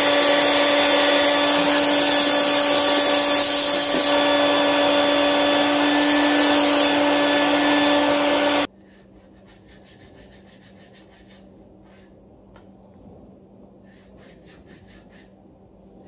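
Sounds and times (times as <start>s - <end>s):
compressed air blasting: 0.0s - 8.7s
bottle brush scrubbing: 8.8s - 12.2s, 13.8s - 15.4s.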